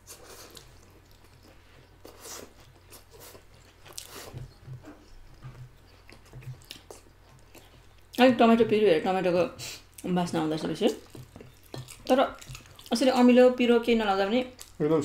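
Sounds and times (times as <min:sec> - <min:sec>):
slurping and chewing noodles: 0:00.0 - 0:07.9.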